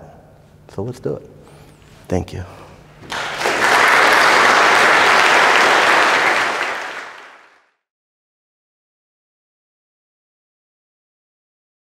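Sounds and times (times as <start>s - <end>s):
audience applauding: 3.0s - 7.7s.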